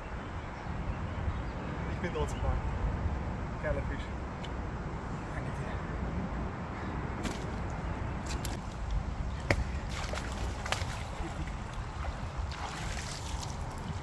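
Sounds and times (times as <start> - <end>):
water sloshing and splashing: 7.2 - 14.0.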